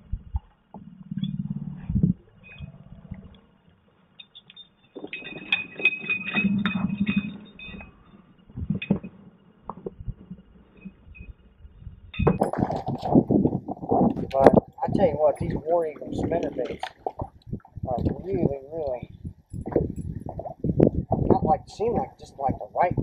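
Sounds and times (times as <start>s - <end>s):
fish splashing: 15.3s - 18.2s.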